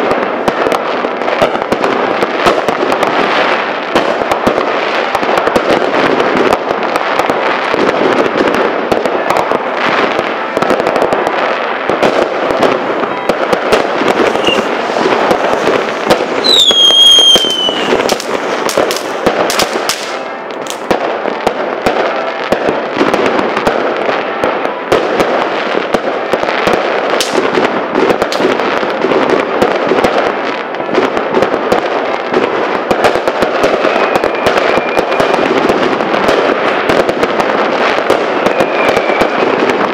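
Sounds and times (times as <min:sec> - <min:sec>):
fireworks bangs and crackling: 0:00.0 - 0:39.9
firework whistle falling in pitch: 0:14.3 - 0:14.8, 0:16.4 - 0:18.0, 0:38.4 - 0:39.6.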